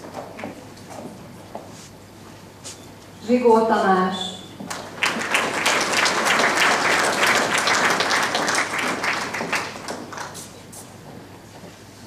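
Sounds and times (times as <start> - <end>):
audience applauding: 4.7 - 10.5.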